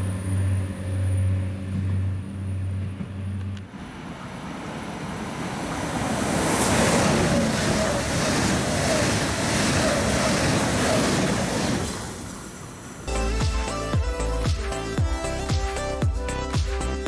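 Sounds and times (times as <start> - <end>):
high-speed train passing: 0.0 - 13.1.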